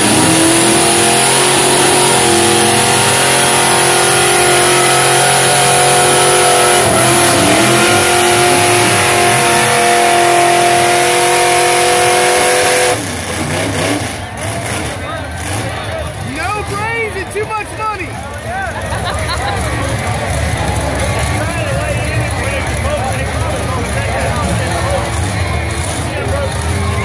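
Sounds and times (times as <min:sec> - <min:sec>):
truck engines revving hard: 0:00.0 - 0:27.0.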